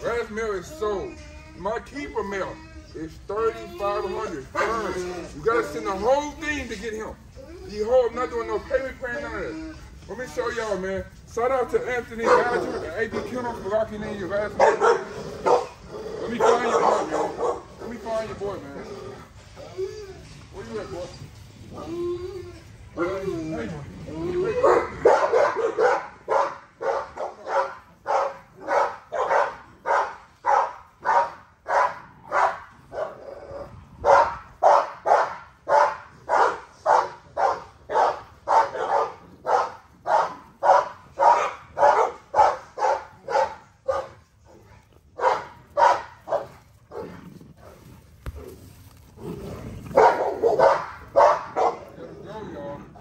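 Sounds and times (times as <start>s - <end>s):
dog barking: 4.6s - 4.9s, 12.2s - 12.7s, 14.6s - 15.8s, 16.4s - 17.7s, 24.6s - 33.2s, 34.0s - 44.2s, 45.2s - 47.1s, 50.0s - 51.9s.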